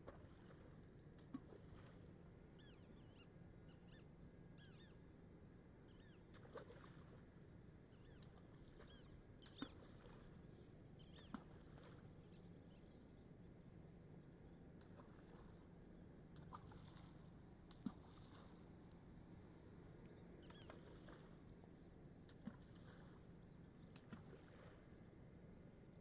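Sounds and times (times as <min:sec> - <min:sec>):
soft splashes in water: 0:00.0 - 0:02.3, 0:06.2 - 0:12.8, 0:14.7 - 0:25.4
faint bird chirps: 0:02.6 - 0:05.0, 0:05.8 - 0:06.3, 0:07.9 - 0:10.2, 0:11.0 - 0:13.3, 0:20.1 - 0:21.2.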